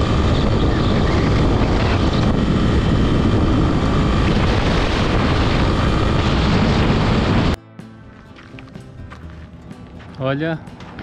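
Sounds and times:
motorcycle engine running: 0.0s - 7.6s
wind rushing over microphone: 0.0s - 7.6s.

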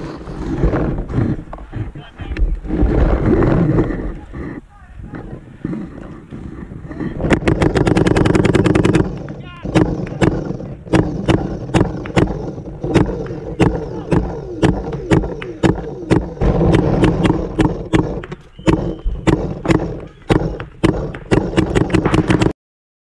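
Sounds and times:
paintball markers firing: 5.1s - 22.6s.

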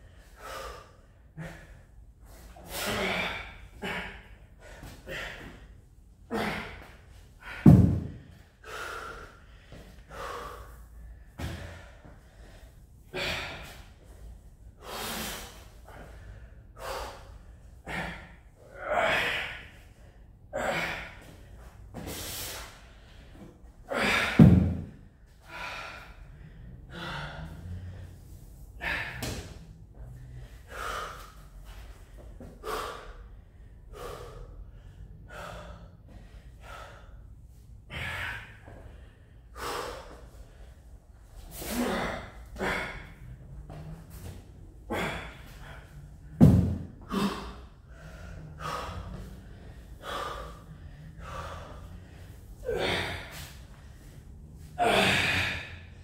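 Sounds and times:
man gasping exercise breaths: 0.0s - 56.0s
slam ball thudding on floor: 7.7s - 8.2s, 46.4s - 46.9s.

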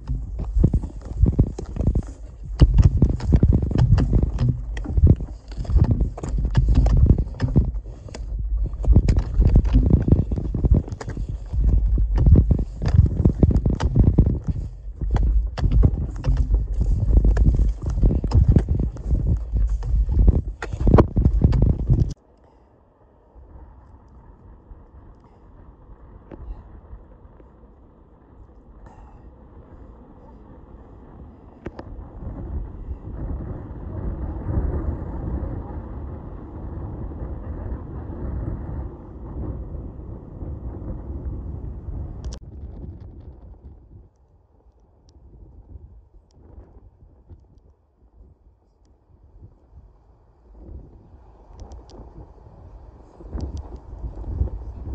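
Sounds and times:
footsteps through dry grass: 0.0s - 22.1s
wind buffeting microphone: 0.0s - 22.2s, 23.1s - 54.9s.

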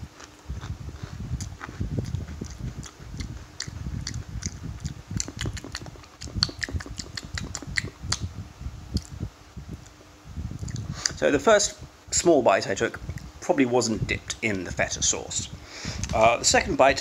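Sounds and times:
chewing thuds: 0.2s - 8.3s.

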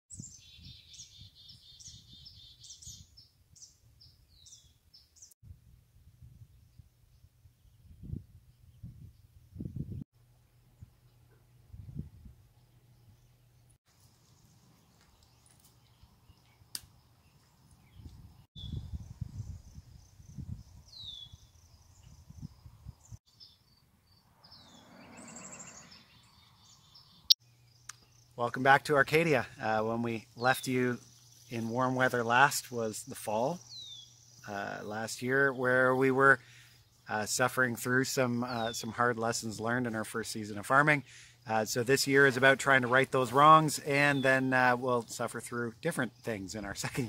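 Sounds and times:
songbirds singing: 0.1s - 5.4s, 6.4s - 47.0s
rapidly pulsed bird call: 20.8s - 28.4s, 32.6s - 34.5s.

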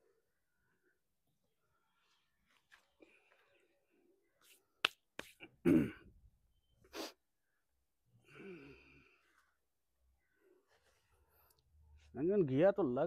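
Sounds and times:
sharp snaps: 4.8s - 5.5s.

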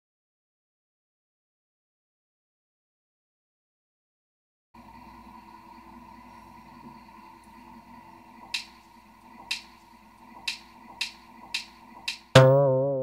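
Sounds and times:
finger snaps: 10.5s - 12.6s
plucked guitar note with tremolo: 12.4s - 13.0s
soft held chord: 12.4s - 13.0s.

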